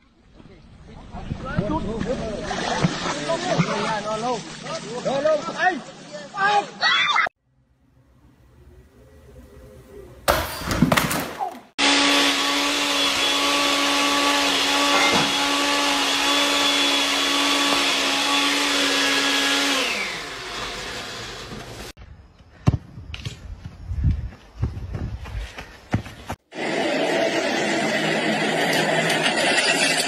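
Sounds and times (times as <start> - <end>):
electric motor whirring: 11.8 - 21.9.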